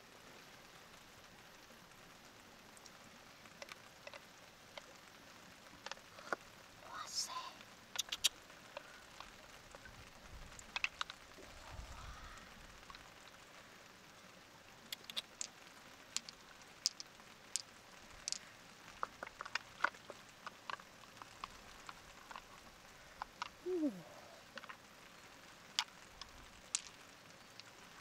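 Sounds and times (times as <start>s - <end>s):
faint crackling: 2.8s - 28.0s
sharp clicks and taps: 14.9s - 15.5s.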